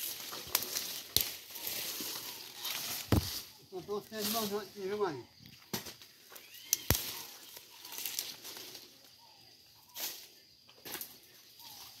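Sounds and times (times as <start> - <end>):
brushing against plants: 0.0 - 4.8
plants rustling: 0.0 - 5.0, 5.9 - 12.0.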